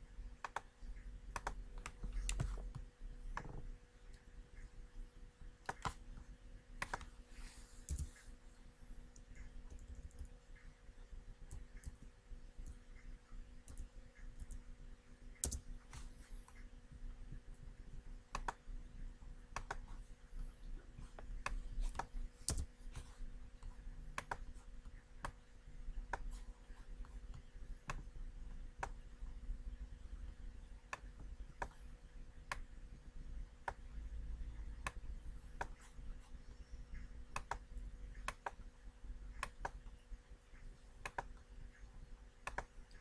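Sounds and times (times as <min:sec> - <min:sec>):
faint steady hum: 0:00.0 - 0:43.0
mouse and keyboard clicks: 0:01.3 - 0:03.6, 0:05.6 - 0:06.0, 0:06.8 - 0:07.1, 0:07.8 - 0:08.2, 0:15.3 - 0:16.6, 0:18.3 - 0:18.6, 0:19.5 - 0:19.9, 0:21.1 - 0:25.4, 0:37.3 - 0:38.7, 0:39.3 - 0:40.0, 0:41.0 - 0:41.4, 0:42.4 - 0:43.0.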